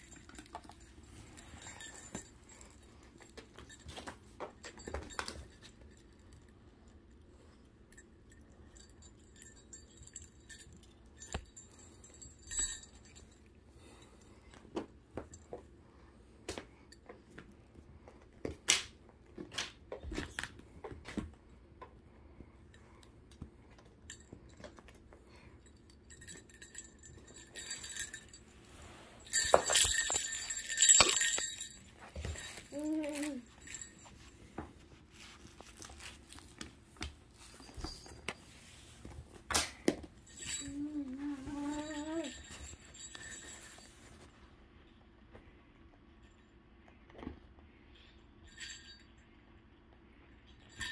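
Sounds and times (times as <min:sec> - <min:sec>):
high ringing jingling: 0:00.0 - 0:04.1, 0:07.9 - 0:14.1, 0:25.6 - 0:35.3, 0:40.2 - 0:44.2.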